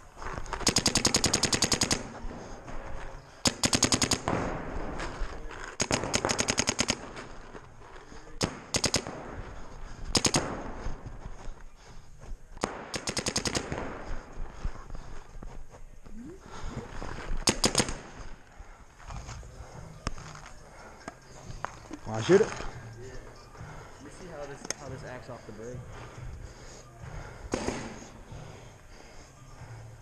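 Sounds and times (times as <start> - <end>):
paintball marker rapid firing: 0.6 - 2.2, 3.4 - 4.8, 5.8 - 7.3, 8.4 - 9.3, 10.1 - 10.9, 12.6 - 14.2, 17.4 - 18.2, 27.5 - 28.1.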